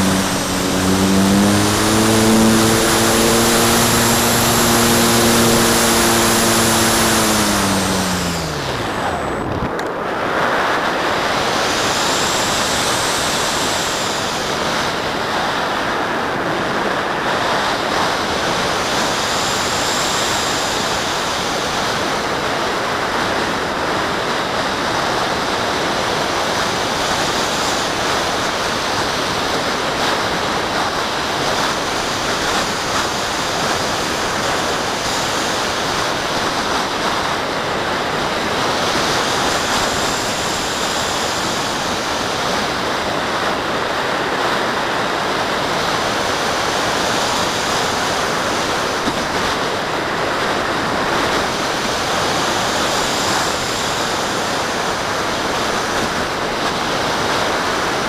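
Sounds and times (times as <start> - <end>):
air rushing over camera: 0.0 - 15.2.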